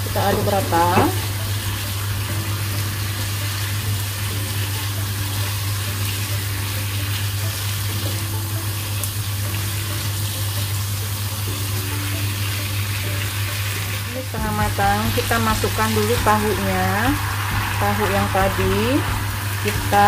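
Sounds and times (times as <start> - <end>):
vegetables sizzling in a frying pan: 0.0 - 20.0.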